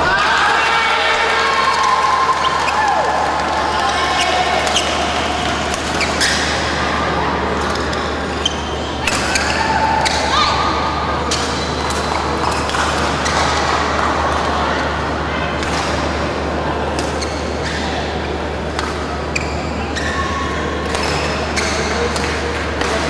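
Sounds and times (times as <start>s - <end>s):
voices chattering: 0.0s - 23.0s
racket hitting shuttlecock: 5.5s - 6.6s, 9.0s - 10.3s, 15.6s - 16.1s, 20.8s - 23.0s
shoe squeaks on court floor: 8.3s - 10.3s.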